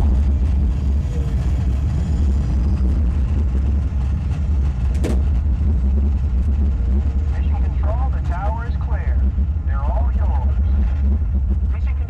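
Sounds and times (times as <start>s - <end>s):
deep rocket launch rumble: 0.0s - 12.0s.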